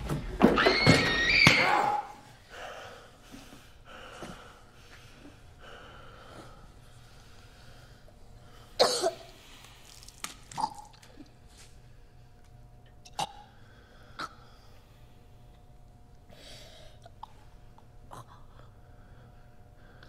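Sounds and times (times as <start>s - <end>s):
loud gasping cough: 8.8s - 9.3s.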